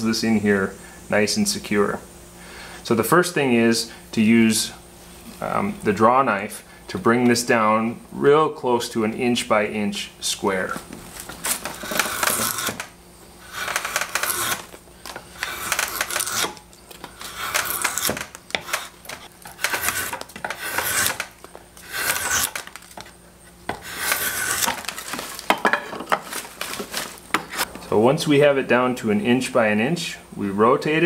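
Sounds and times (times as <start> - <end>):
drawknife scraping wood: 11.2 - 27.7.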